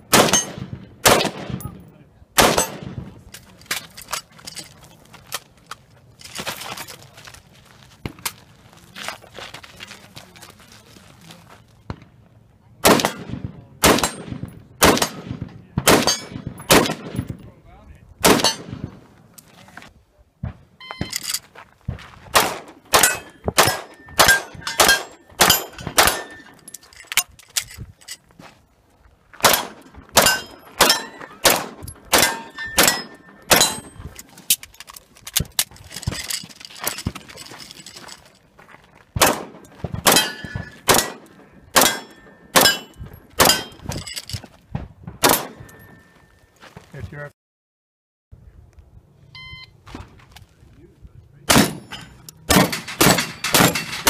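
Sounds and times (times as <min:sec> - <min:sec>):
rapid pistol shots: 0:00.1 - 0:01.7, 0:02.4 - 0:03.0, 0:12.8 - 0:17.3, 0:18.2 - 0:19.0, 0:22.3 - 0:26.4, 0:29.4 - 0:33.8, 0:39.2 - 0:43.7, 0:51.5 - 0:51.8, 0:52.5 - 0:54.0
rifle shots echoing: 0:00.1 - 0:01.8, 0:02.4 - 0:03.3, 0:12.8 - 0:17.4, 0:18.2 - 0:19.1, 0:22.3 - 0:26.5, 0:29.4 - 0:34.1, 0:39.2 - 0:43.8, 0:45.2 - 0:45.8, 0:51.5 - 0:54.0
metallic rings from steel targets: 0:23.0 - 0:28.2, 0:30.2 - 0:34.2, 0:40.1 - 0:44.4, 0:45.3 - 0:46.3, 0:51.6 - 0:54.0.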